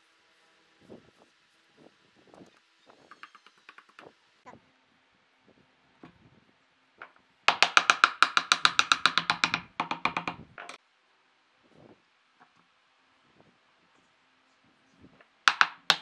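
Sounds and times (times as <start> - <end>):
wooden mallet tapping wood: 3.1 - 4.1, 7.0 - 10.8, 15.5 - 16.0.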